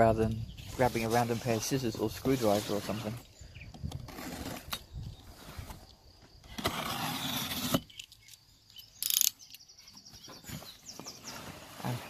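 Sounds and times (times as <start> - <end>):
bird chirp: 0.0 - 4.0, 7.7 - 12.0
tape tearing: 6.4 - 8.3.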